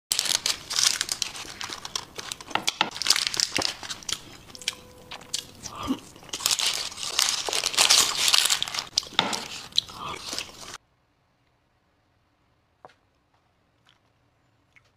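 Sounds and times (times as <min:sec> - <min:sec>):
paper crinkling: 0:00.1 - 0:10.8.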